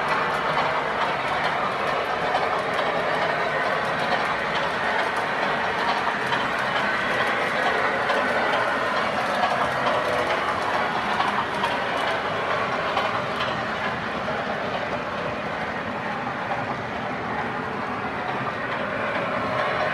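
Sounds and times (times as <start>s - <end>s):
model train wheels on rails: 0.0s - 19.9s.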